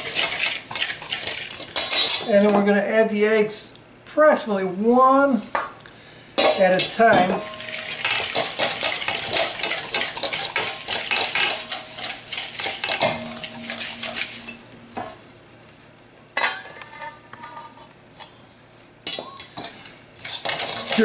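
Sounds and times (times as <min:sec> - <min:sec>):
whisk beating in metal bowl: 0:00.0 - 0:01.9, 0:07.6 - 0:14.3, 0:20.2 - 0:21.0
steel bowls clanging together: 0:07.2 - 0:15.2, 0:20.3 - 0:21.0.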